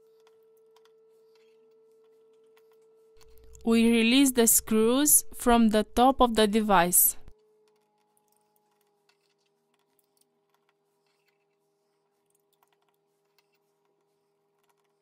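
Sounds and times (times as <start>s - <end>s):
steady low hum: 3.2s - 7.3s.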